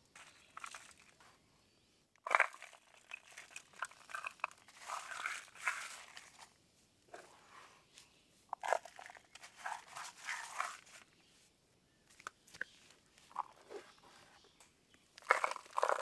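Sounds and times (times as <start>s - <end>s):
crunching and chewing: 0.2s - 1.2s, 2.2s - 6.5s, 8.5s - 10.9s, 15.1s - 16.0s.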